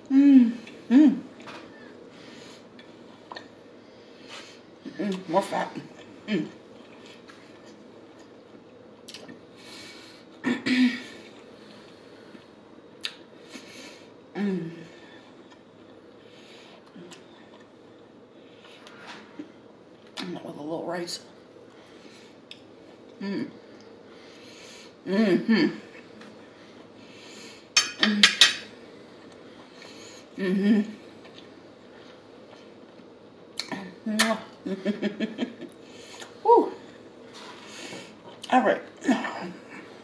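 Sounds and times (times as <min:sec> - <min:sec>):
person humming while chewing: 0:00.0 - 0:01.6, 0:23.1 - 0:23.7
person chewing wet clicks: 0:09.0 - 0:09.4.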